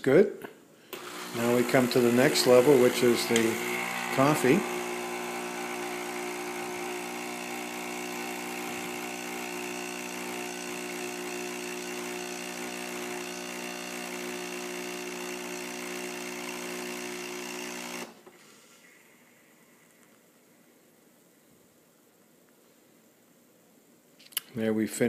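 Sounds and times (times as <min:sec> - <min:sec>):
coffee machine pump humming: 0:01.0 - 0:18.2.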